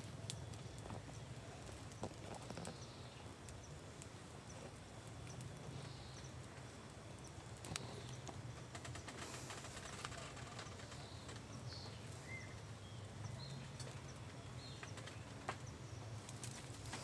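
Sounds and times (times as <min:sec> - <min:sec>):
clicks from dry leaf litter: 0:00.0 - 0:12.7, 0:13.3 - 0:17.0
bird chirps: 0:05.2 - 0:06.4, 0:10.6 - 0:16.2.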